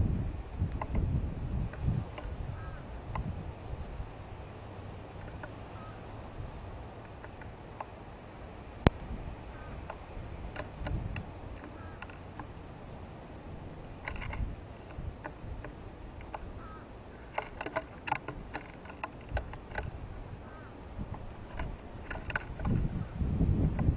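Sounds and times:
low background noise: 0.0 - 23.9
birds pecking seed on wood: 5.1 - 5.9, 6.9 - 8.0, 8.9 - 12.6, 13.6 - 23.9.

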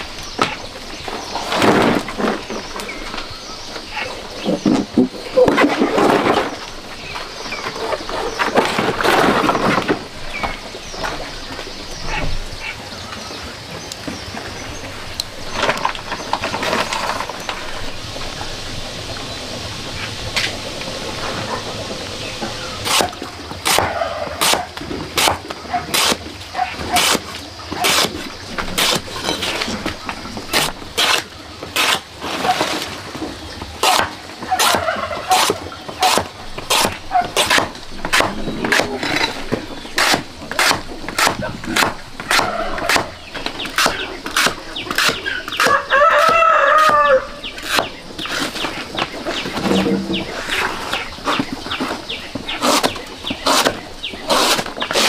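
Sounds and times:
chickens clucking: 0.2 - 55.0
rooster crowing: 45.7 - 47.4.

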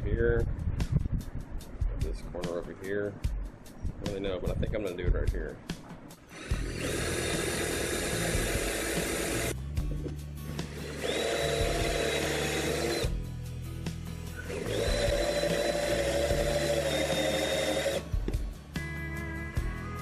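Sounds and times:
cordless drill drilling into wood: 6.3 - 9.6, 10.6 - 13.1, 14.4 - 18.1.

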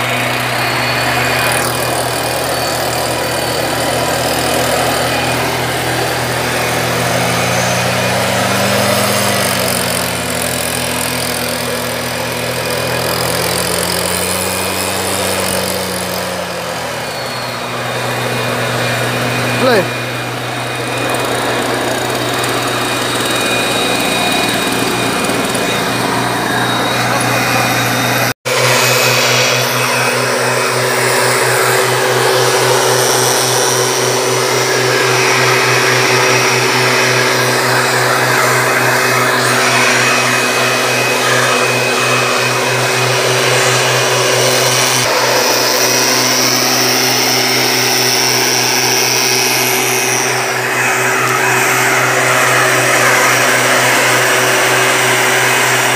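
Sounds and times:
mist blower engine running: 0.0 - 55.9.

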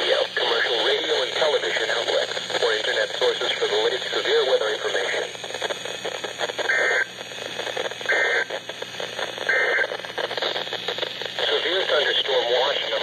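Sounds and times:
radio hiss: 0.0 - 13.0
warbling data tone bursts: 2.5 - 12.0.

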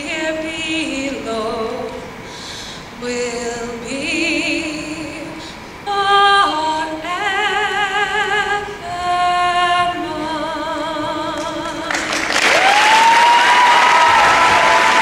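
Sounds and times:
woman singing into microphone: 0.0 - 12.2.

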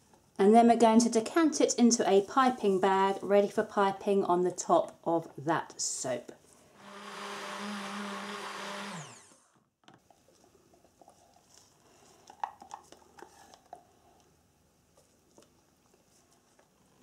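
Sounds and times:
stick blender humming: 6.8 - 9.6.

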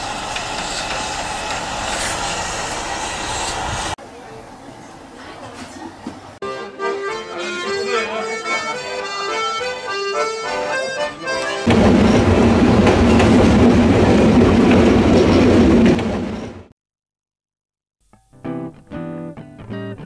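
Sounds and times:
loud steady rushing noise: 0.0 - 4.0, 11.7 - 16.7
accordion playing: 6.4 - 12.5.

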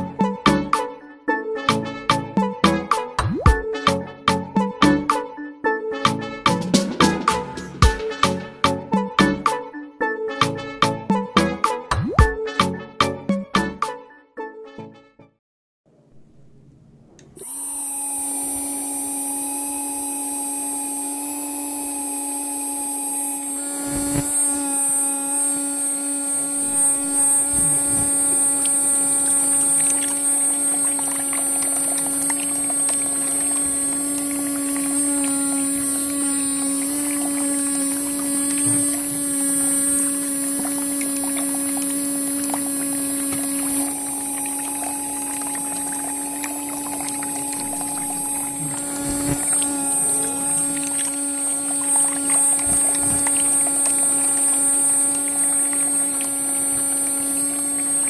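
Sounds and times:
water pump motor whining: 0.0 - 0.9, 6.1 - 9.6, 16.6 - 58.0
water splashing from spout: 17.8 - 58.0.

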